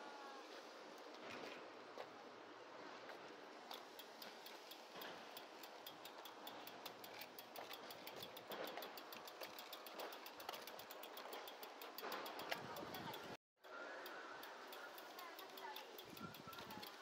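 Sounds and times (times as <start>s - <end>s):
bicycle freewheel hub ticking: 3.7s - 13.4s, 14.0s - 17.0s.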